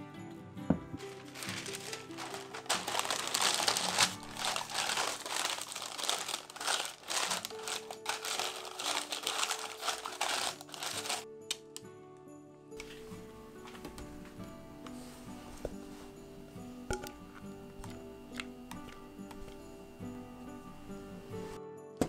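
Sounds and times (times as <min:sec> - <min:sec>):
parchment paper crumpling: 0:01.0 - 0:11.2.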